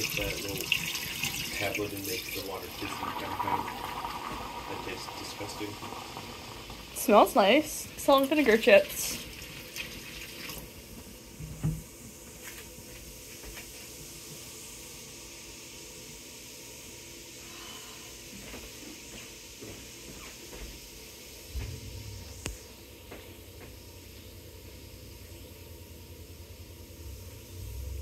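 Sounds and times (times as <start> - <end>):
foam fizzing in drain: 0.0 - 11.4
low thumps: 21.5 - 22.6.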